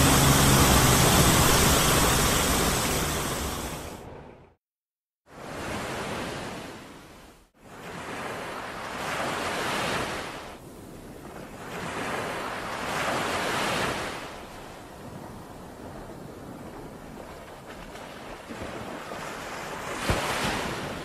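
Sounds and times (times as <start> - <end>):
waves washing on rocky shore: 0.0 - 3.9.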